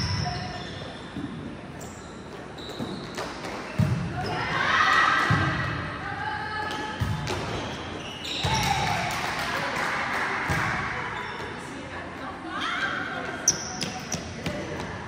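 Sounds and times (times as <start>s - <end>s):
shoe squeaks: 0.0s - 4.4s, 7.1s - 8.8s, 11.1s - 11.8s, 13.4s - 14.4s.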